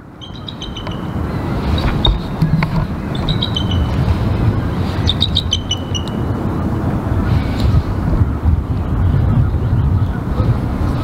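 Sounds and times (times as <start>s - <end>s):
birds chirping: 0.0s - 7.8s
wind buffeting microphone: 0.0s - 11.0s.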